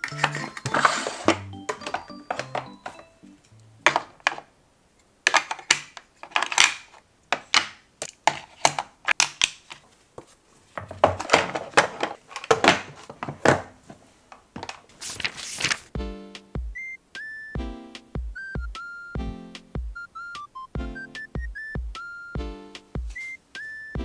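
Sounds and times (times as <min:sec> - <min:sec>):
plastic cases clicking into tray: 0:00.0 - 0:03.1, 0:03.8 - 0:04.5, 0:05.2 - 0:09.8, 0:10.8 - 0:13.7.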